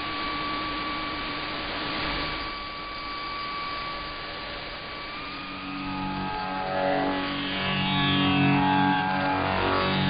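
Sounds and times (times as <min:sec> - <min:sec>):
thin steady whistle: 0:00.0 - 0:06.7.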